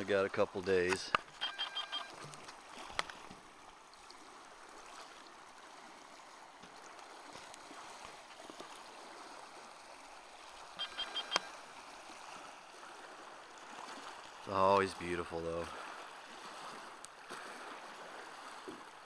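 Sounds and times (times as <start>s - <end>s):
waves lapping on gravel shore: 0.0s - 19.0s
short high chirps: 1.4s - 2.1s, 10.8s - 11.5s.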